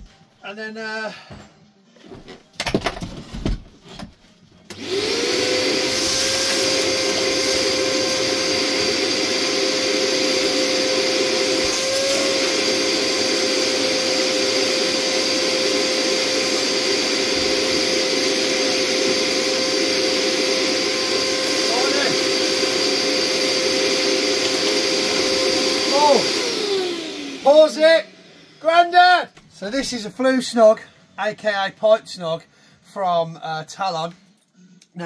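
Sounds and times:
vacuum cleaner running: 4.7 - 29.0.

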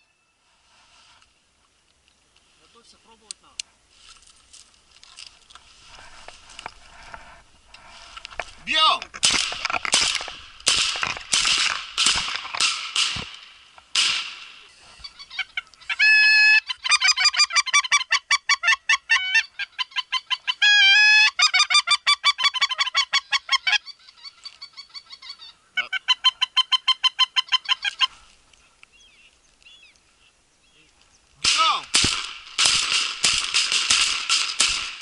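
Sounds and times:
sharp cracks: 8.2 - 14.7, 31.4 - 35.0
goose call honks and clucks: 14.8 - 28.2.

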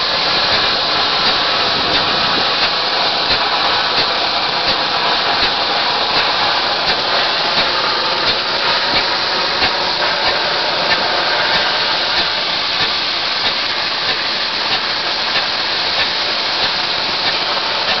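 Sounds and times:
sprayed concrete hissing rush: 0.0 - 18.0.

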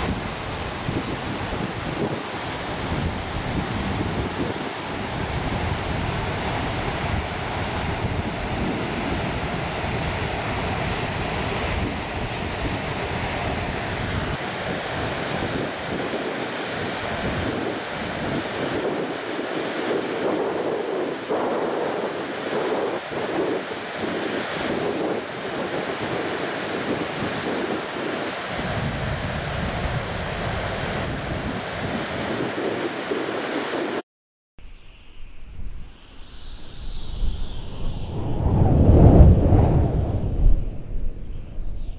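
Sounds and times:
floodwater rushing: 0.0 - 20.2
wind buffeting microphone: 0.0 - 33.7, 35.3 - 41.9.

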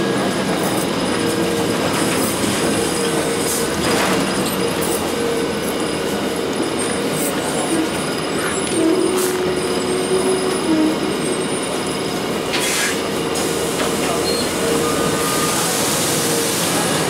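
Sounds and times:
bus diesel engine running: 0.0 - 17.0
short air hiss: 12.6 - 13.6.

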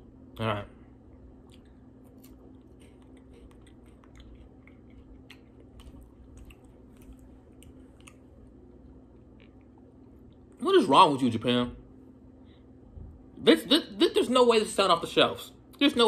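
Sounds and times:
person chewing crisp wafer: 1.1 - 10.6.

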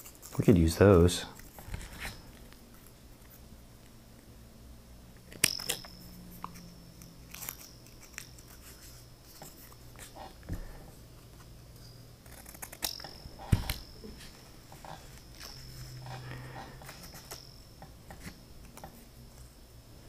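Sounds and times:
scissors snipping paper: 12.2 - 13.2.

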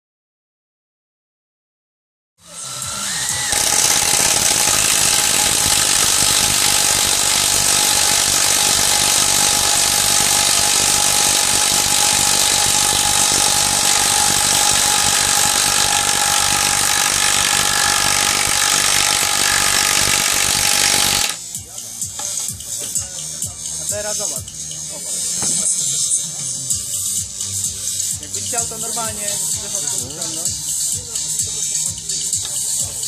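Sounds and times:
motor whine: 2.4 - 21.4
impact wrench hammering: 3.2 - 21.4.

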